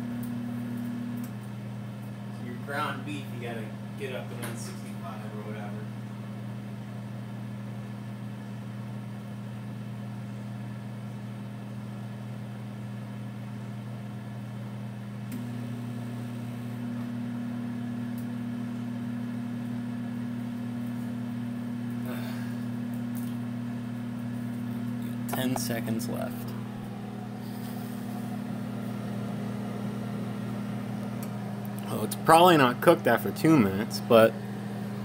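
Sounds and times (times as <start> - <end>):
microwave oven humming: 0.0 - 35.0
higher magnetron hum: 20.4 - 35.0
microwave click: 28.0 - 31.9.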